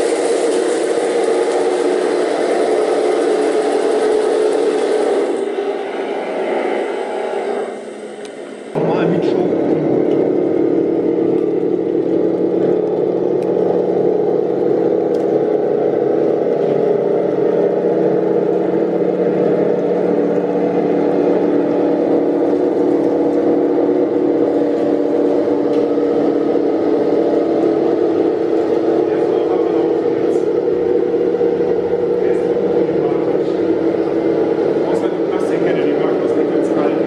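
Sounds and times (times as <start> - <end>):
electric drive whir: 0.0 - 37.0
simulated engine sound from speaker: 0.0 - 37.0.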